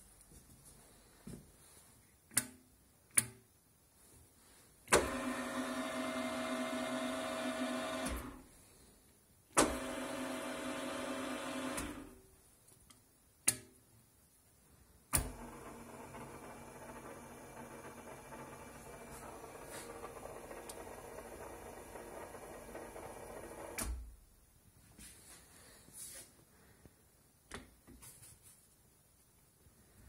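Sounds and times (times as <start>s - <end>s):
milling machine motor and gears running: 15.3s - 23.8s.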